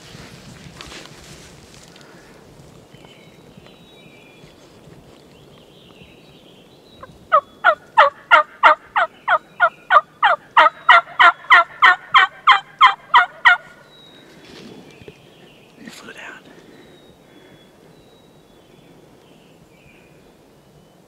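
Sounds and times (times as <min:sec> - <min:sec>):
turkey yelps: 0:07.3 - 0:13.8.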